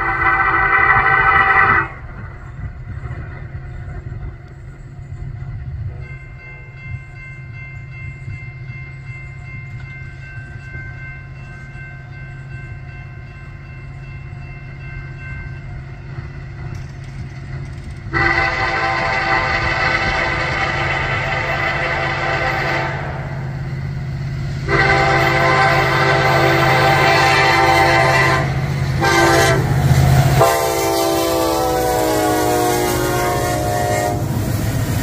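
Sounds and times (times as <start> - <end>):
diesel locomotive rumbling: 0.0 - 35.0
air horn chord blasts: 18.1 - 23.3, 24.6 - 29.7, 30.4 - 34.4.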